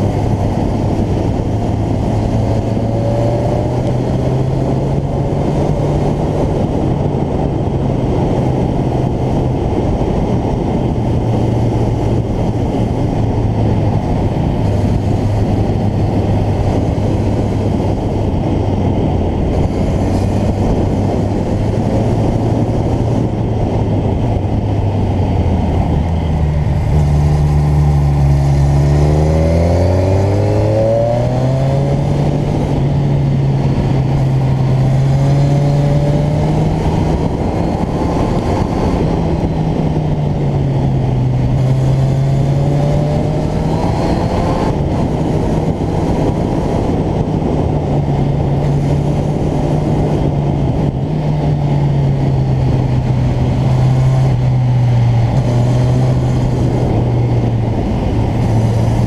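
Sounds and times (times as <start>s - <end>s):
motorcycle engine accelerating: 0.0s - 59.0s
wind noise: 0.0s - 59.0s.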